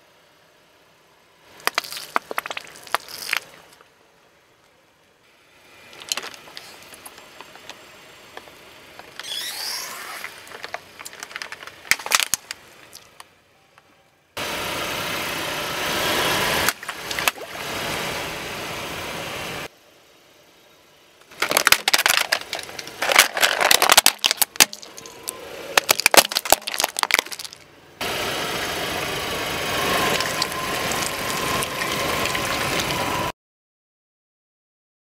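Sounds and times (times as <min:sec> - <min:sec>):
car tyre rolling on asphalt: 0:01.4 - 0:13.4, 0:14.4 - 0:19.7, 0:21.1 - 0:33.3
water splashing on pavement: 0:01.6 - 0:03.6, 0:16.7 - 0:17.8, 0:30.0 - 0:33.1
plastic tubes cracking: 0:01.6 - 0:03.8, 0:05.9 - 0:09.4, 0:10.1 - 0:13.3, 0:21.2 - 0:27.6
water balloons squeaking and popping: 0:01.6 - 0:03.8, 0:05.9 - 0:07.8, 0:08.4 - 0:13.2, 0:16.6 - 0:18.0, 0:21.3 - 0:27.6, 0:29.8 - 0:33.3.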